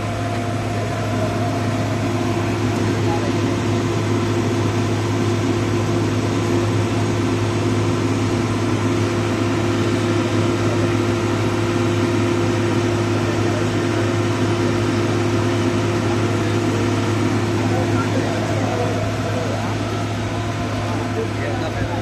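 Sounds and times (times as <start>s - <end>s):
diesel engine running: 0.0s - 22.0s.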